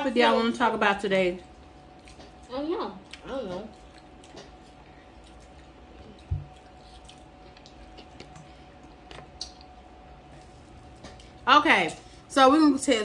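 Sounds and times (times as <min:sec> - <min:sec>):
soft chewing: 0:01.3 - 0:12.2.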